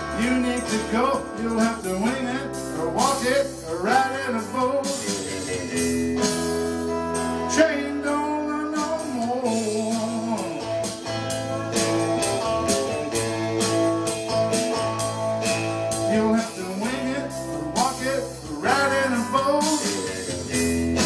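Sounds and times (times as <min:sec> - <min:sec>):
man singing: 0:00.0 - 0:06.5, 0:07.3 - 0:11.1, 0:15.9 - 0:21.0
backing track with steady beat: 0:00.0 - 0:21.0
electric guitar: 0:00.0 - 0:21.0.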